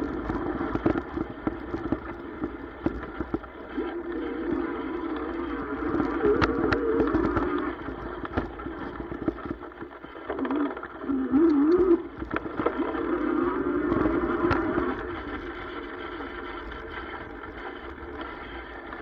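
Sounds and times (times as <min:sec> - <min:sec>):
bike knocking and rattling: 0:00.0 - 0:04.0.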